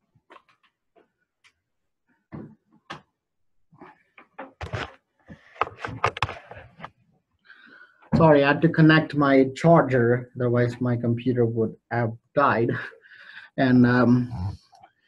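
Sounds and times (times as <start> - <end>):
handling charger cable: 4.2 - 7.0.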